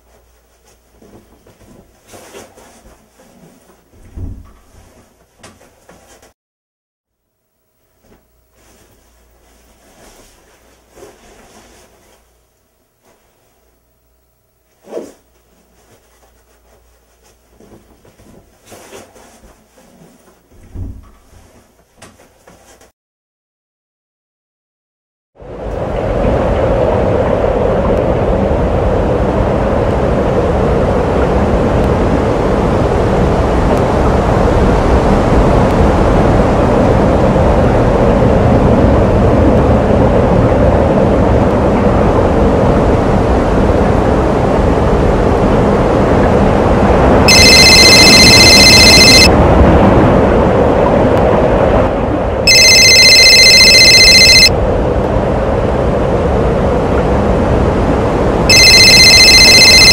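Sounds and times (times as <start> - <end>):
loud steady noise: 47.2 - 49.3, 58.5 - 59.9
telephone ringing: 47.3 - 49.3, 52.5 - 54.5, 58.5 - 59.9.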